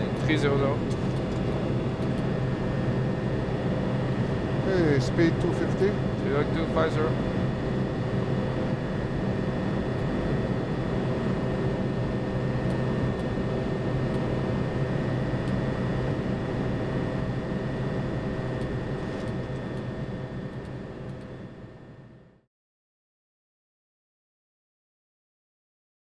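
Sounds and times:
airflow rushing over cockpit: 0.0 - 20.1
jet engine hum and tones: 0.0 - 22.5.

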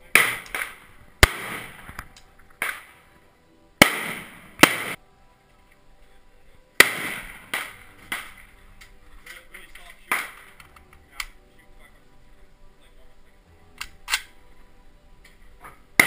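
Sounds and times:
rifle gunshots echoing: 0.0 - 3.1, 3.8 - 5.0, 6.8 - 9.0, 9.9 - 11.4.

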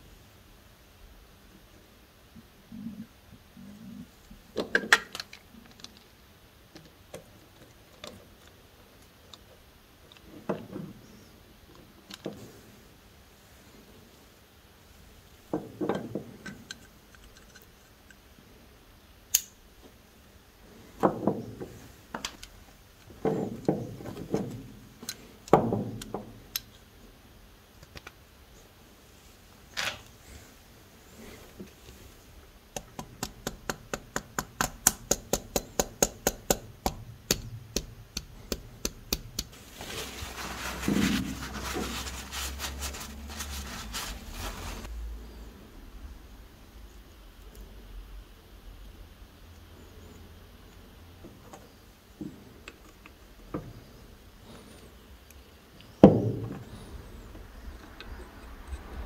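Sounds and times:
cloth rubbing on metal: 39.5 - 44.9.

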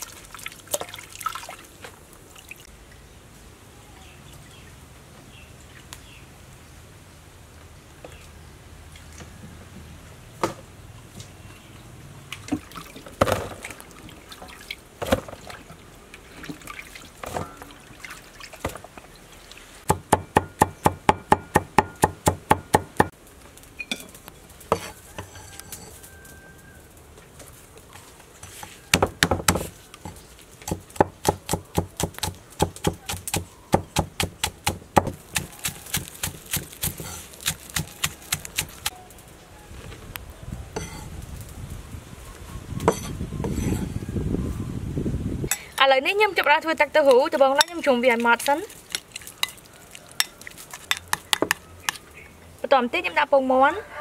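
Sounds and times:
cleaver chopping on wooden board: 30.7 - 38.8.

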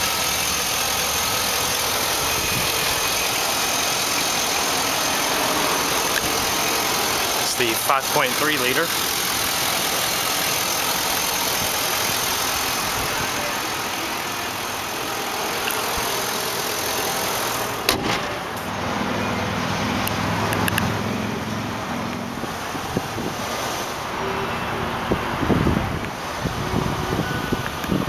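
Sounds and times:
car engine idling: 0.0 - 28.0
sharp knock: 17.9 - 18.4.

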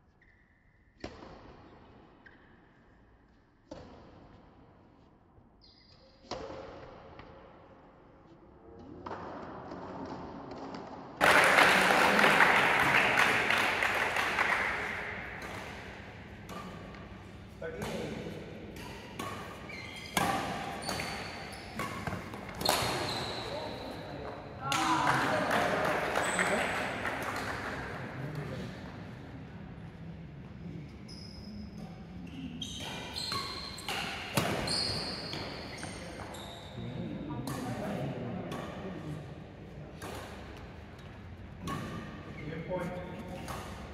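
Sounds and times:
applause: 11.2 - 15.2, 24.8 - 28.2
rackets striking shuttlecock: 13.3 - 23.4, 32.8 - 35.9, 40.0 - 42.1
shoes squeaking on court floor: 13.4 - 25.2, 25.9 - 28.7, 30.4 - 37.9.

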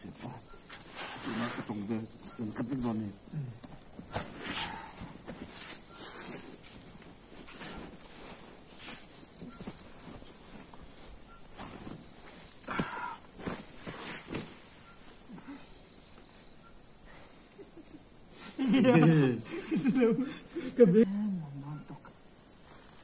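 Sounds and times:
night insects trilling: 0.0 - 23.0
bedding rustling: 3.9 - 15.3.

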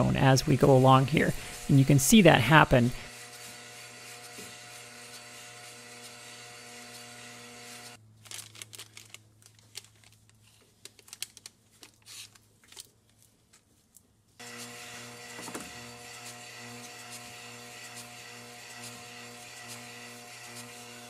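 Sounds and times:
lathe humming: 0.0 - 8.0, 14.4 - 21.0
hands rustling masking tape: 8.1 - 14.8.

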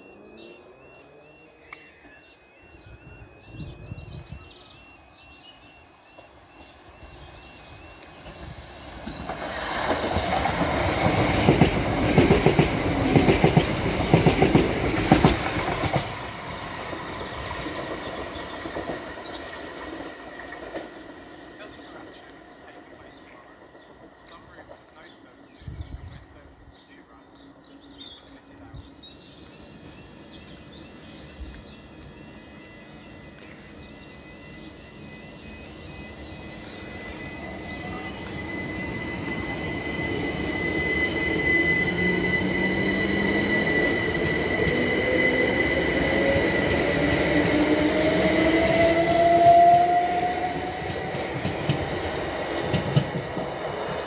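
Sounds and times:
wheel-on-rail noise: 29.2 - 54.0
electric train motor whine: 29.3 - 54.0.

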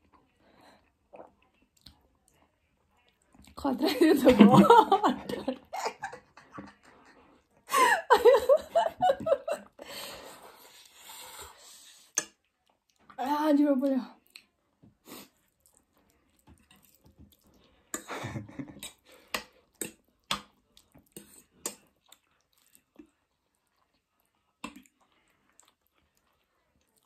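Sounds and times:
wet chewing and smacking: 0.0 - 3.6, 12.1 - 13.2, 14.2 - 14.6, 15.2 - 27.0.

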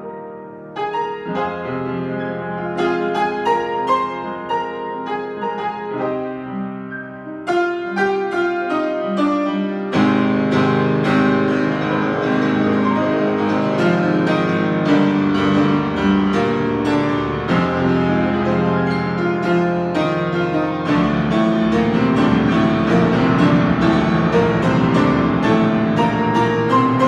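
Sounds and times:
grand piano playing: 0.0 - 27.0.

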